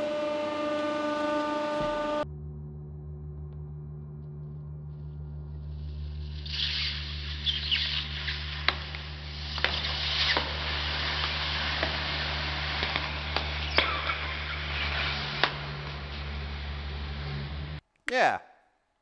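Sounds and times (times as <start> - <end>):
sharp crackling pops: 6.5 - 16.0.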